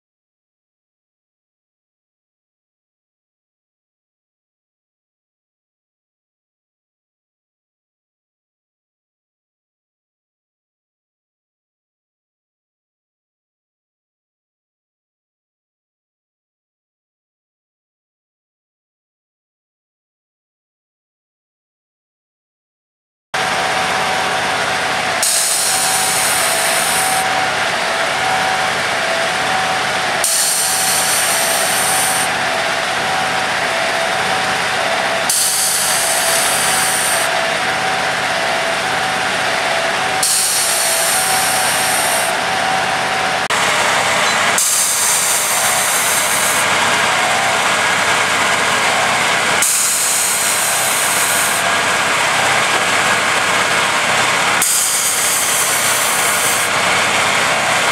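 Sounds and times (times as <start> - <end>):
machine engine with whining tone: 23.4 - 57.9
loud hydraulic hiss: 25.2 - 27.4, 30.2 - 32.3, 35.3 - 37.3, 40.2 - 42.4, 43.6 - 47.0, 49.6 - 51.7, 54.6 - 56.7.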